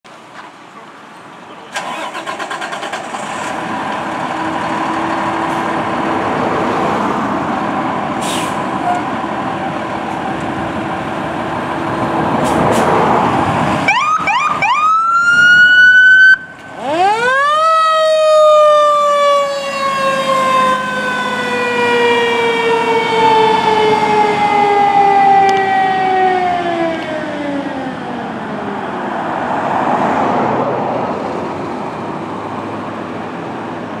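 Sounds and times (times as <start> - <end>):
fire engine siren wailing: 4.2 - 29.2.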